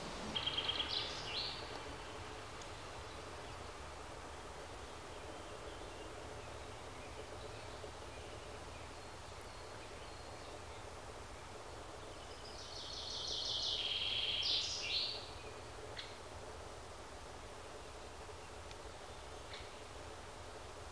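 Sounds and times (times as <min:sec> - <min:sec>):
low steady rumble: 0:00.0 - 0:12.6.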